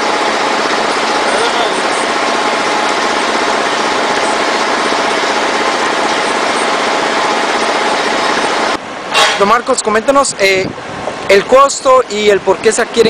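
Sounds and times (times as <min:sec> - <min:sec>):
bus diesel engine idling: 0:00.0 - 0:08.8.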